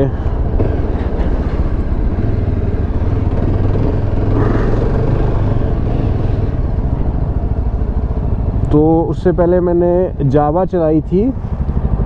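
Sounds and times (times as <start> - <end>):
motorcycle engine running: 0.1 - 12.0.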